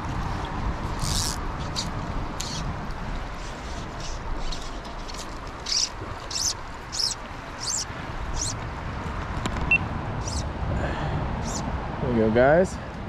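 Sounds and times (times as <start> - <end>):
creek rushing: 0.0 - 13.0
fishing line rasping zip: 1.0 - 2.6.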